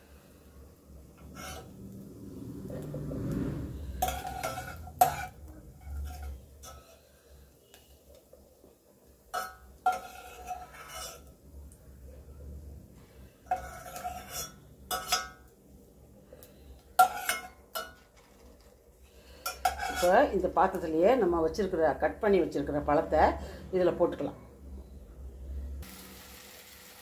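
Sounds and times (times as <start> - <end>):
steel ladle scraping metal pot: 1.2 - 1.9, 3.6 - 7.2, 9.3 - 11.3, 13.4 - 15.4, 17.0 - 18.2, 19.2 - 20.3.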